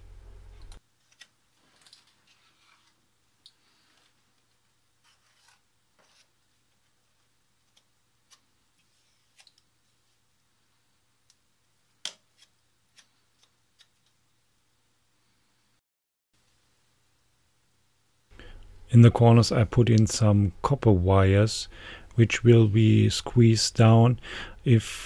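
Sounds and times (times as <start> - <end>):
spatula scraping epoxy: 5.0 - 6.4.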